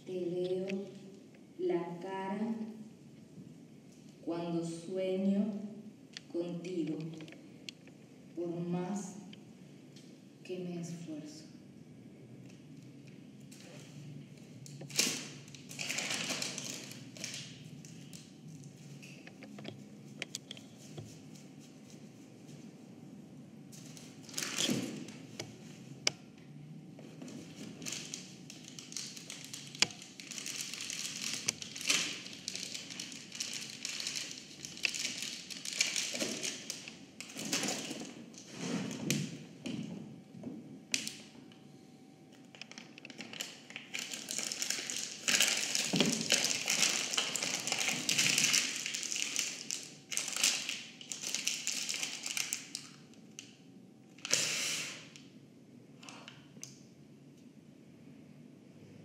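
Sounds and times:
paper rustling and crumpling: 0:27.2 - 0:39.0, 0:42.6 - 0:52.8.

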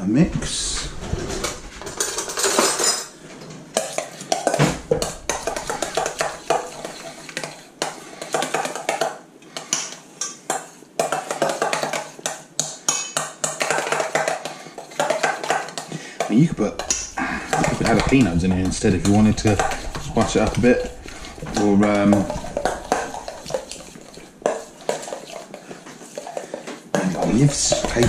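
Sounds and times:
cutlery stirring in metal bowl: 0:01.4 - 0:03.1, 0:03.7 - 0:28.0
cutlery rattling in drawer: 0:01.8 - 0:03.1.

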